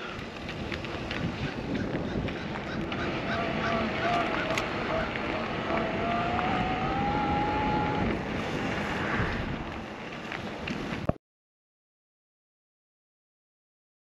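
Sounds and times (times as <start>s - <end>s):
wind rushing on microphone: 0.0s - 11.1s
thin electric motor whine: 3.5s - 8.2s.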